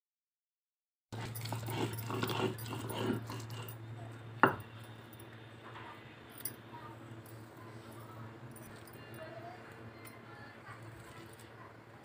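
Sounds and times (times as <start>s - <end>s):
metal scraper on stone slab: 1.2s - 3.8s
steady low hum: 1.2s - 12.0s.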